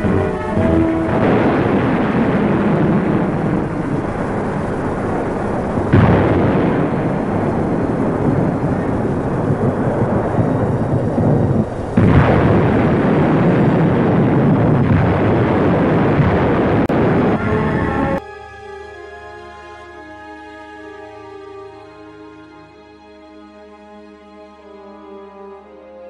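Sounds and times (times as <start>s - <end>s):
rockets firing with rushing noise: 0.0s - 18.2s.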